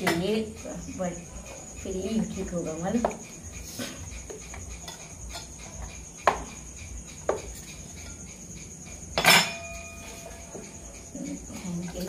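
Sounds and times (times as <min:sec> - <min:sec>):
knife clinking on metal plate: 0:09.1 - 0:10.3.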